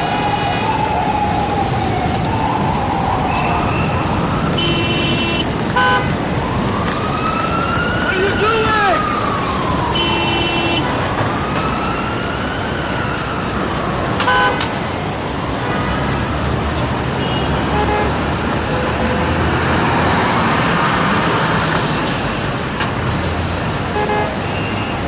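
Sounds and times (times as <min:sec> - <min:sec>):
faint siren wailing: 0:00.0 - 0:25.0
traffic engines and tyres: 0:00.0 - 0:25.0
car horns honking: 0:04.6 - 0:06.1, 0:10.0 - 0:10.9, 0:14.2 - 0:14.7, 0:17.2 - 0:18.2, 0:23.9 - 0:24.9.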